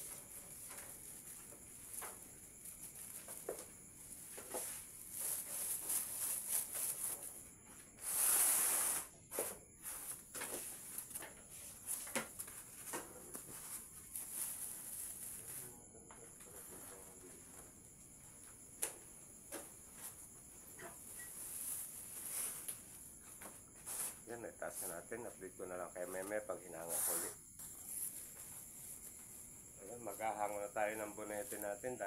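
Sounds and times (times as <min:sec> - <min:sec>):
faint high whine: 0:13.4 - 0:32.0.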